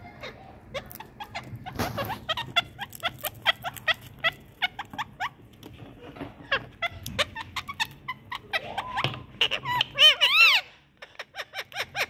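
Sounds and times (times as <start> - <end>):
parakeets chirping: 0.0 - 12.0.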